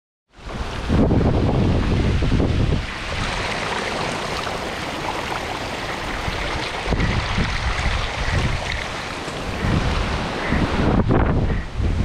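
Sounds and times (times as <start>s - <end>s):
wind buffeting microphone: 0.4s - 12.0s
bicycle tyres splashing through water: 0.6s - 10.6s.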